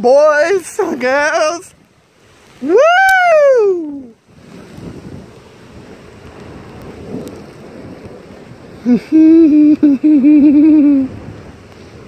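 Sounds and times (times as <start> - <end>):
rain: 0.0 - 12.0
wind: 0.0 - 12.0
man yelling woo: 2.6 - 4.2.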